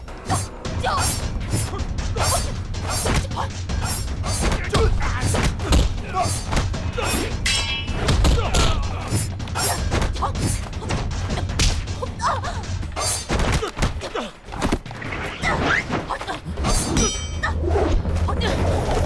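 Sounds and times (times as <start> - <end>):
punch and kick impacts: 1.5 - 12.1.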